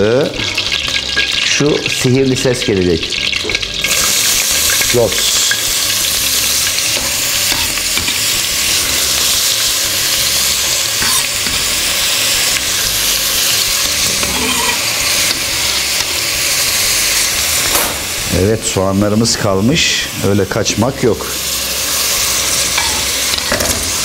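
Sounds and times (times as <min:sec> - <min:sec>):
onions sizzling in hot oil: 0:00.0 - 0:24.0.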